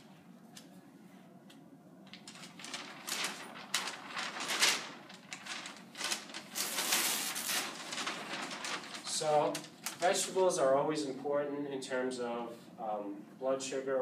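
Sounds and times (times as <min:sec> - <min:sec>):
paper rustling and crinkling: 0:02.1 - 0:10.6
paper tearing: 0:02.3 - 0:10.2.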